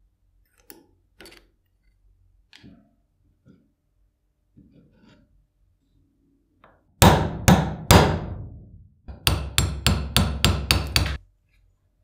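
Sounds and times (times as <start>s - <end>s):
hammer striking steel punch: 7.0s - 11.2s.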